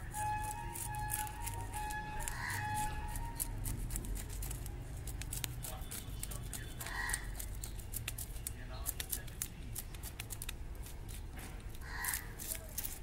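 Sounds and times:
knife scraping fish scales: 0:00.0 - 0:13.0.

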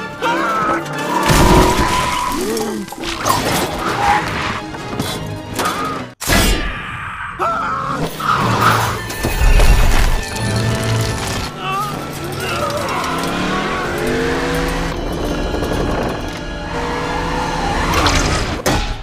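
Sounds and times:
orchestral music: 0:00.0 - 0:06.2.

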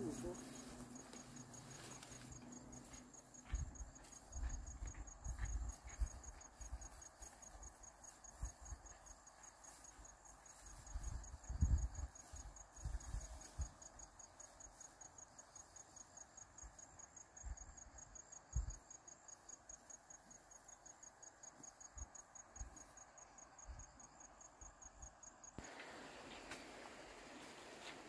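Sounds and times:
insect chirping: 0:00.0 - 0:28.0.

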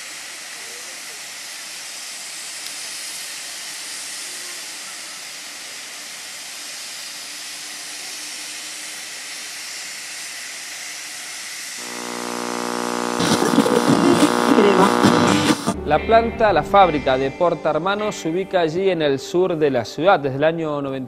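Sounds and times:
steady hiss: 0:00.0 - 0:15.8
droning tone with overtones: 0:11.8 - 0:16.5.

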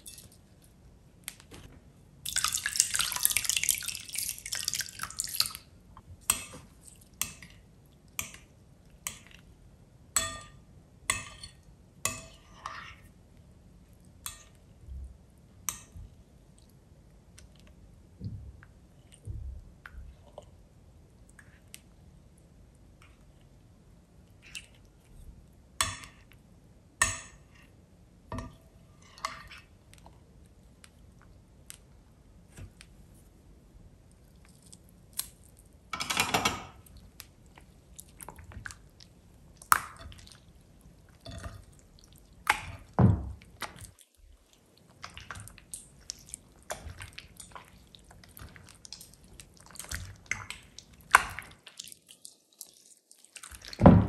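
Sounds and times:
slime squelching: 0:36.8 - 0:53.8.

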